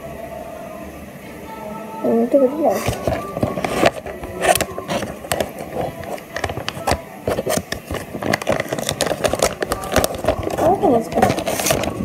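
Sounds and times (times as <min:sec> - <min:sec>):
plastic bag crinkling: 0:02.7 - 0:12.0.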